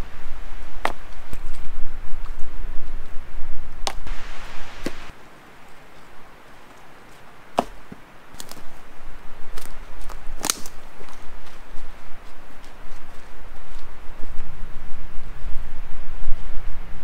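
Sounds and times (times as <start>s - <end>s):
axe chopping wood: 7.6s - 8.6s, 10.4s - 10.8s.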